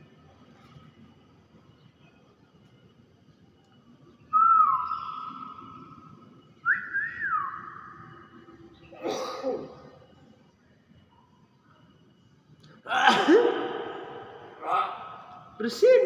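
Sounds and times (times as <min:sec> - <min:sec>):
bird whistles: 0:04.3 - 0:08.4.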